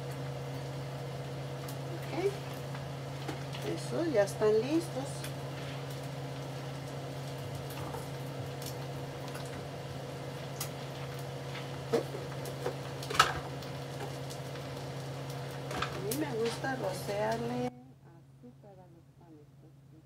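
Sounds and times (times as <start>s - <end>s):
bacon sizzling and popping: 0.0s - 17.7s
steady low hum: 0.0s - 20.0s.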